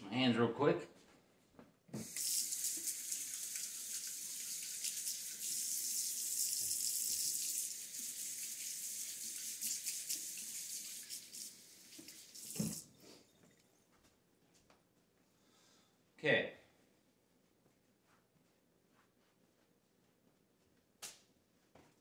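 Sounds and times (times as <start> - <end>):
hands washing under water: 2.0 - 12.9
faucet running into sink: 2.0 - 13.0.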